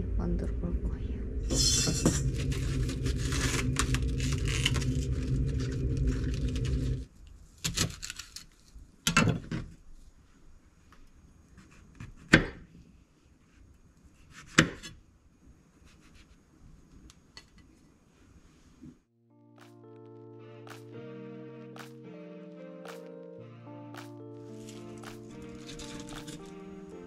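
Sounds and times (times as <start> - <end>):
low hum with rustling: 0.0 - 7.5.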